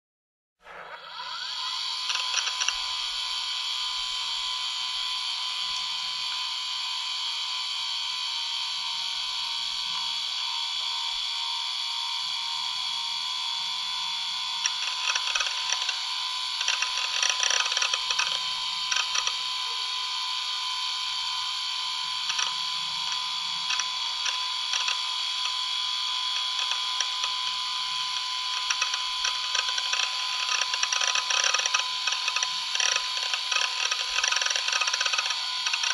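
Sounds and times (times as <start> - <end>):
laptop whirring hiss with whine: 0.6 - 35.9
irregular clicking and ticking: 14.6 - 16.0, 16.6 - 19.4, 22.3 - 25.6, 26.3 - 27.5, 28.1 - 35.9.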